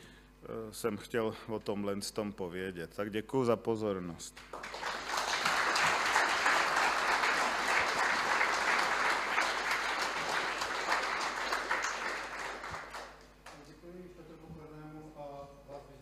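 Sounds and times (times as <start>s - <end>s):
audience applauding: 4.4s - 13.6s.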